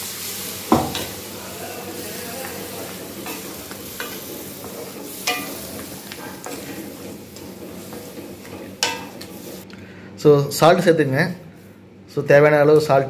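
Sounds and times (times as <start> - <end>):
gravy sizzling: 0.0 - 9.7
spatula stirring gravy: 2.0 - 9.7.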